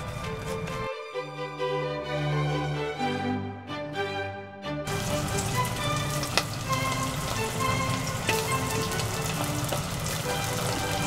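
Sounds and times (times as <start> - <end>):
chicken deep-frying in oil: 4.9 - 11.0.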